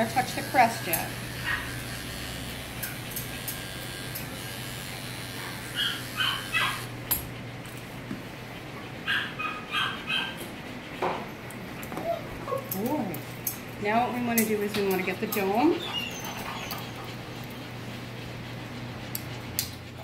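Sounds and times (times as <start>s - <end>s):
electric dog clipper humming: 0.0s - 7.9s, 12.7s - 15.8s
dog whining in high yips: 5.8s - 6.8s, 9.1s - 10.4s, 12.0s - 12.8s.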